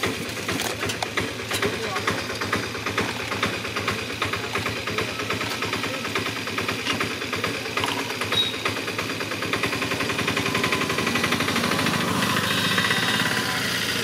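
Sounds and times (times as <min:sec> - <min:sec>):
small engine idling: 0:00.0 - 0:14.0.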